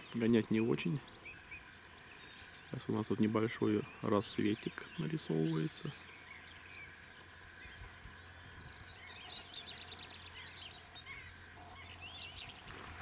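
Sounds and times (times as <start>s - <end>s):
birds chirping and singing: 0.0s - 13.0s.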